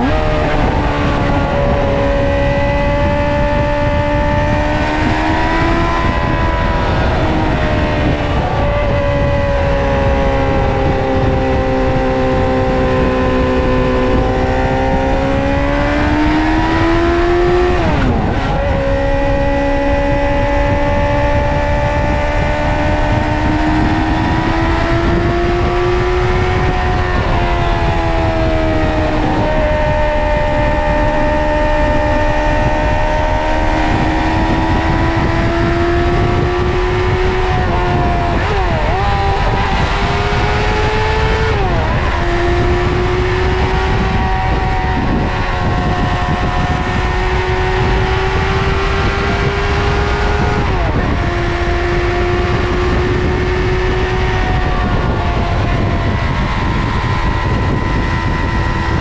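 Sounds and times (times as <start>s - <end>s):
motorcycle engine at high revs: 0.0s - 59.0s
steady rushing noise: 0.0s - 59.0s.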